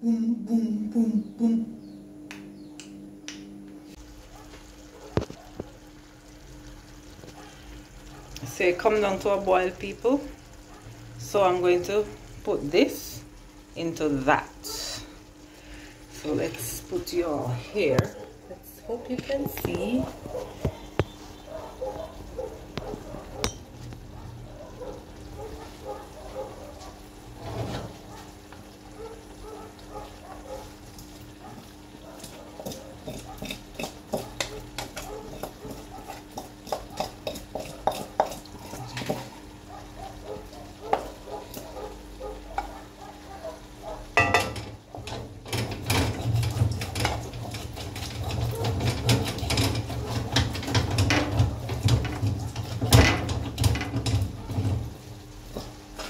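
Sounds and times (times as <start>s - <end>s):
food sizzling in pot: 3.9s - 56.0s
metal spoon scraping pot: 32.6s - 35.8s.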